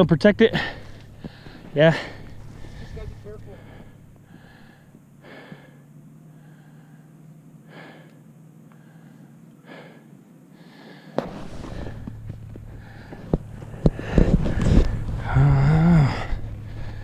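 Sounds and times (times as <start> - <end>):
low steady hum: 0.0 - 17.0
person breathing: 0.6 - 17.0
clothing rustling against microphone: 11.2 - 15.2.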